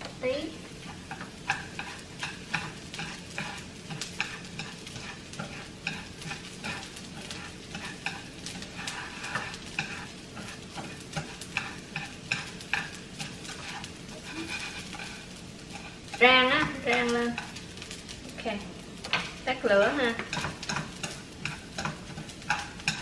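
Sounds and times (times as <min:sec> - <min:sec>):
frying sizzle: 0:00.0 - 0:23.0
chopsticks scraping rice in pan: 0:00.8 - 0:17.9, 0:20.0 - 0:23.0.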